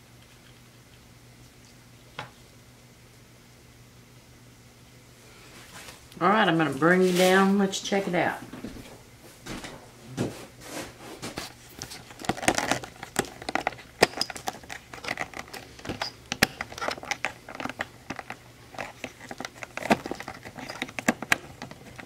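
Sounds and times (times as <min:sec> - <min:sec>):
plastic crinkling and clicking: 0:11.4 - 0:22.0.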